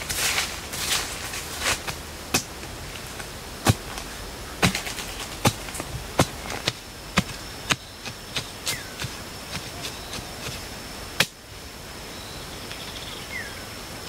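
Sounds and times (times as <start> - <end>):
hoe chopping into soil: 0.0 - 10.6.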